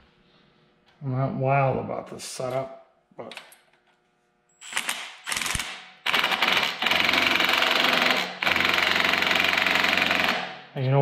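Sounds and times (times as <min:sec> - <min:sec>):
impact driver hammering: 0:04.8 - 0:10.6.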